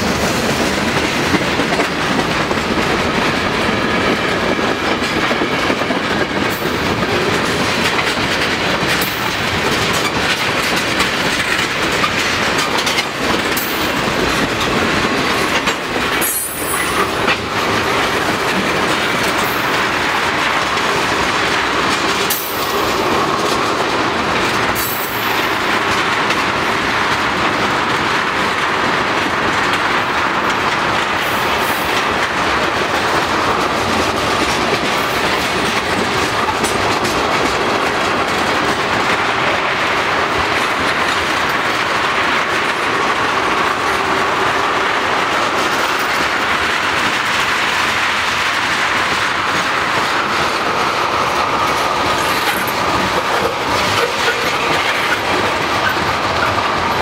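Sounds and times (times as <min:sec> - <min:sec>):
train wheels rolling on rails: 0:00.0 - 0:57.0.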